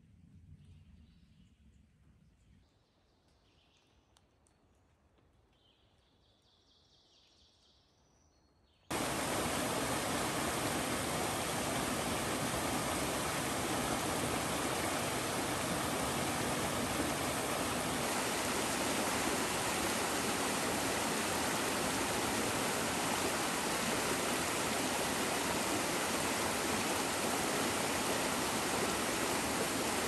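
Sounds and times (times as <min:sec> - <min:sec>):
rush of running water: 0:08.9 - 0:30.0.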